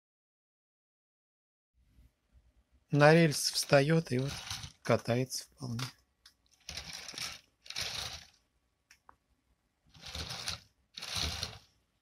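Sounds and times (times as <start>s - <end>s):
model train wheels rattling on rails: 3.4s - 5.0s, 6.6s - 8.4s, 9.9s - 11.7s.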